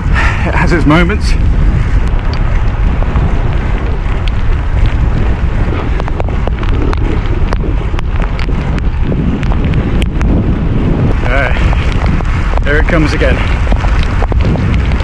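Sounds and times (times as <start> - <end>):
wind buffeting microphone: 0.0 - 15.0
sharp ticks: 2.0 - 10.8.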